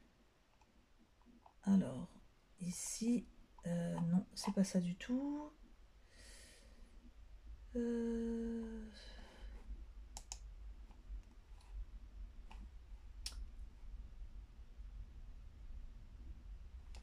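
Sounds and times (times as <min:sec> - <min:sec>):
woman humming: 0:07.7 - 0:09.4
computer mouse clicks: 0:10.1 - 0:11.7.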